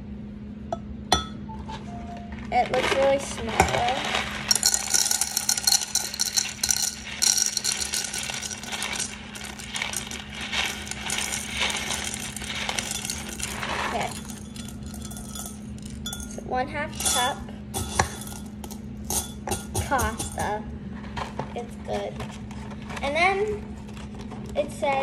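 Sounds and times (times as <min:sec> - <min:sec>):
dry pasta rattling into a mug: 0:02.4 - 0:16.4, 0:17.0 - 0:20.4.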